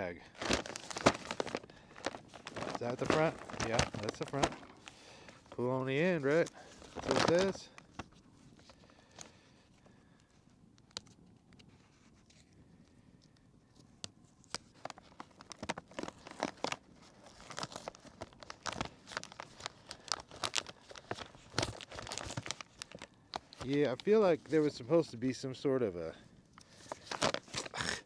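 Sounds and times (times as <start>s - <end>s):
paper bag tearing and crinkling: 0.0s - 7.7s, 14.8s - 24.0s, 26.8s - 28.0s.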